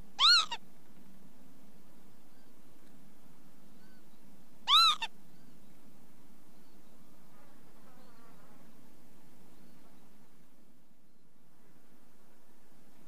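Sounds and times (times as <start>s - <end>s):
low background noise: 0.0s - 13.0s
lapwing calling: 0.2s - 0.6s, 3.8s - 5.6s.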